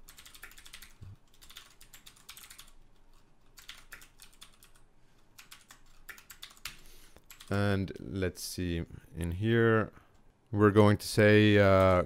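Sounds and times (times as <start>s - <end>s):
keyboard typing: 0.0s - 4.8s, 5.4s - 7.6s.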